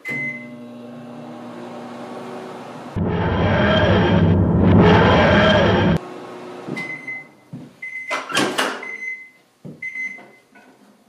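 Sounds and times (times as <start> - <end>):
microwave oven humming: 0.0 - 6.8.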